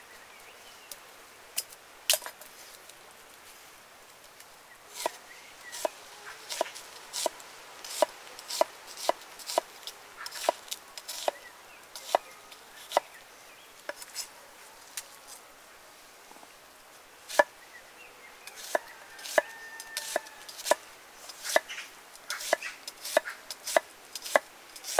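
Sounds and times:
knife chopping on wooden board: 0:18.6 - 0:20.8.

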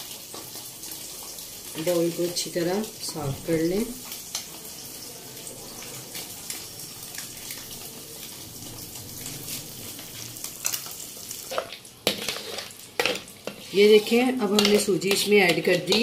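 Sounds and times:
ghee and sugar sizzling in pan: 0:00.0 - 0:16.0
spatula scraping: 0:09.5 - 0:16.0.

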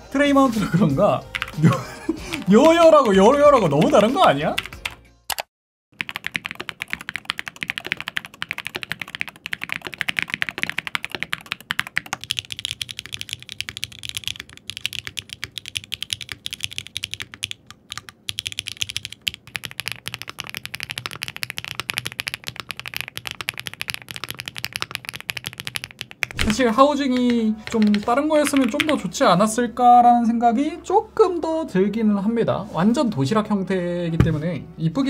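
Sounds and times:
fast typing on mechanical keyboard: 0:01.3 - 0:29.0.

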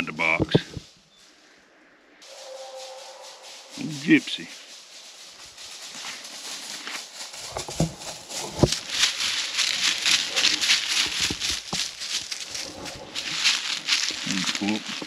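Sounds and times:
footsteps crunching dry leaves: 0:02.2 - 0:15.0.

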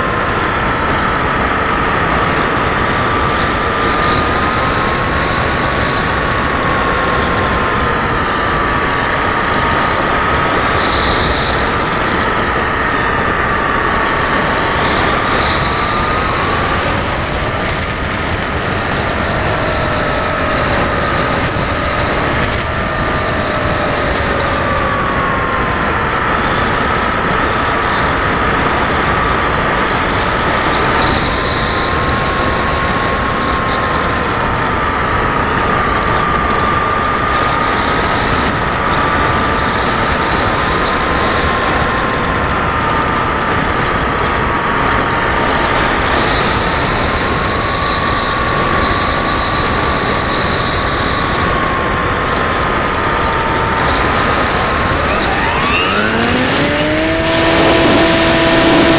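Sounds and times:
model aircraft motor whining: 0:14.9 - 0:26.1, 0:53.3 - 0:58.9.

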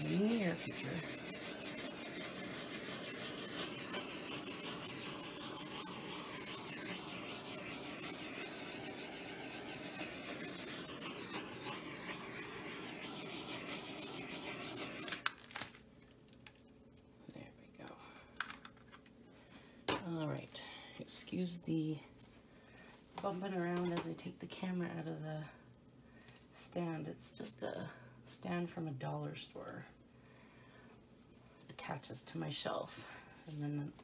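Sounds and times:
gas torch hissing: 0:00.0 - 0:15.3.

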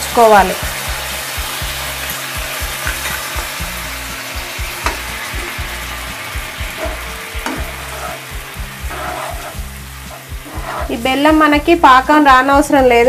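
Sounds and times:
sizzling in a frying pan: 0:00.0 - 0:13.0
spoon stirring and knocking pan: 0:04.8 - 0:05.6, 0:06.4 - 0:11.0.

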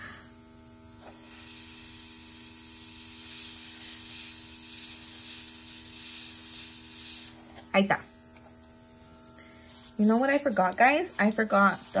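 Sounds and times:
air compressor low hum: 0:00.0 - 0:12.0
airbrush gun hissing: 0:00.8 - 0:07.6, 0:09.4 - 0:12.0.

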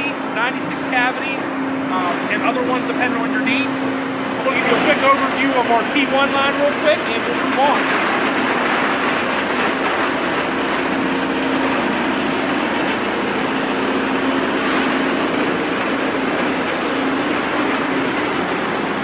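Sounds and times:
low machine hum: 0:00.0 - 0:19.0.

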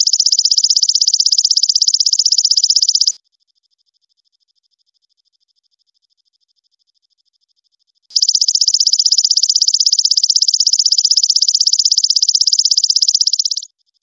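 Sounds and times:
katydid buzzy trill: 0:00.0 - 0:03.2, 0:08.1 - 0:13.7
faint pulsed insect trill: 0:00.0 - 0:14.0.

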